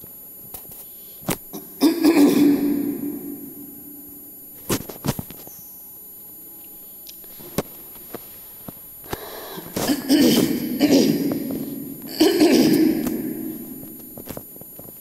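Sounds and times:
quiet background hum: 0:00.0 - 0:15.0
person speaking: 0:01.5 - 0:04.3, 0:09.5 - 0:14.2.

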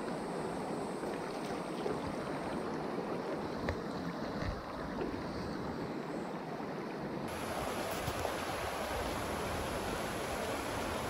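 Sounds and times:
water rushing over rocks: 0:07.3 - 0:11.0.

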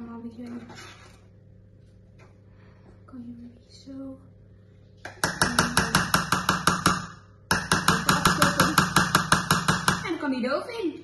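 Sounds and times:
rapid sharp knocks: 0:05.1 - 0:10.2.

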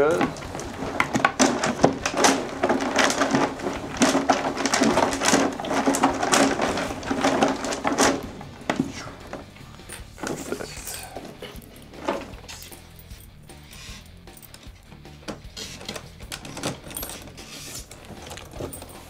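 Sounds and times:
paper slips rustling in spinning drum: 0:00.0 - 0:12.6
scattered clicks and knocks: 0:00.0 - 0:13.3, 0:14.3 - 0:19.0.

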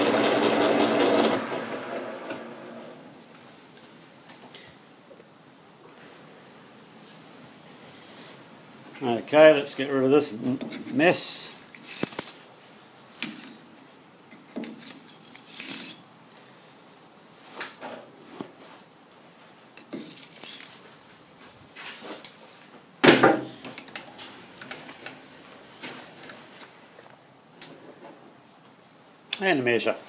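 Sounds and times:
metal swarf jangling and clinking: 0:10.7 - 0:12.4, 0:14.6 - 0:16.0.

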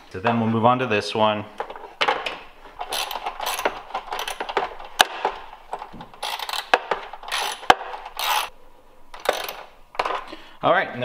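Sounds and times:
socket ratchet clicking: 0:02.8 - 0:05.4, 0:06.2 - 0:08.5, 0:09.2 - 0:09.7
sharp metal clicks: 0:02.8 - 0:08.5.

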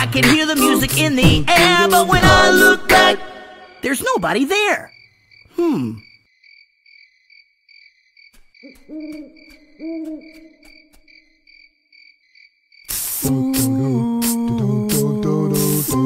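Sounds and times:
owl hoots: 0:08.6 - 0:10.9.

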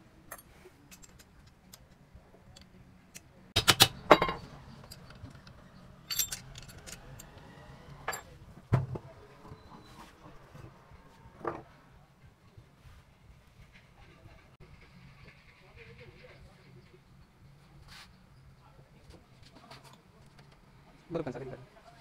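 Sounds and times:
metal clinks and clanks: 0:03.6 - 0:08.3.

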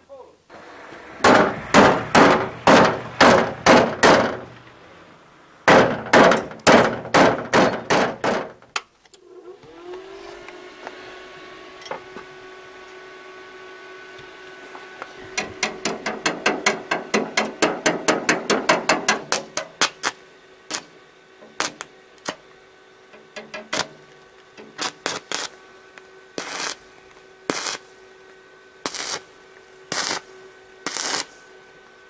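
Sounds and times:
welder cooling fan hum: 0:00.0 - 0:32.0
hammer blows on sheet steel: 0:01.2 - 0:04.5, 0:05.7 - 0:08.6, 0:15.3 - 0:20.0.

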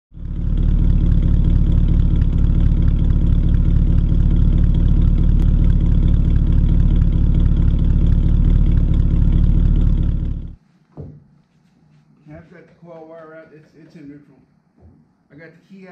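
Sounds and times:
car engine idling: 0:00.1 - 0:10.6.

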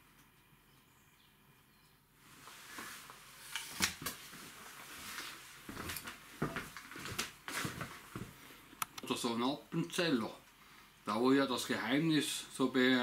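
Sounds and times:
rustling: 0:02.2 - 0:08.6.

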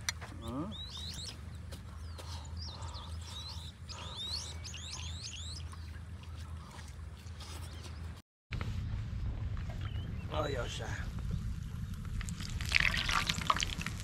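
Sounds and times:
birds chirping: 0:00.0 - 0:08.2, 0:09.7 - 0:12.2
low background rumble: 0:00.3 - 0:14.0.

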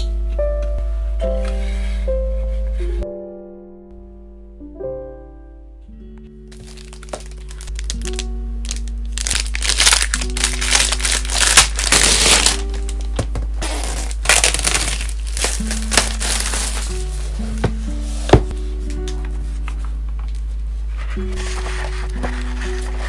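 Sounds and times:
soft background music: 0:00.0 - 0:23.0
plastic wrap crinkling: 0:06.5 - 0:19.0.

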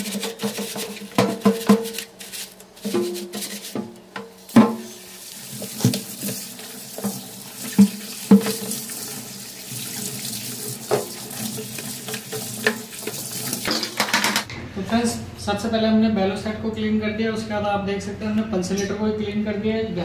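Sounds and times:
plastic disc knocking in sink: 0:00.0 - 0:02.2, 0:02.8 - 0:04.9, 0:05.6 - 0:09.1, 0:10.7 - 0:14.5
tap water splashing: 0:02.8 - 0:14.2.

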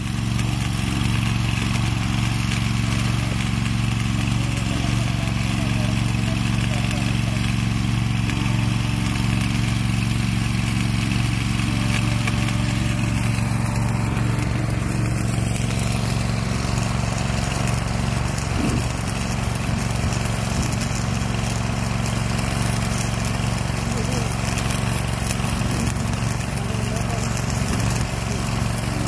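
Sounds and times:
welding arc hiss and crackle: 0:00.0 - 0:29.0
welding machine drone: 0:00.0 - 0:29.0.

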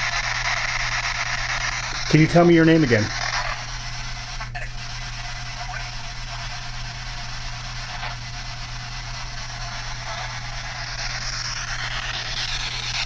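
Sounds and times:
radio static hiss: 0:00.0 - 0:13.0
radio voice fragment: 0:02.0 - 0:06.5.

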